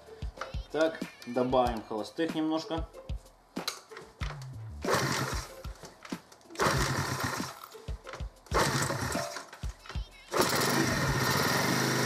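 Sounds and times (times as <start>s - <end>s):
moped engine idling unevenly: 6.6s - 7.4s, 8.6s - 9.1s, 10.1s - 12.0s.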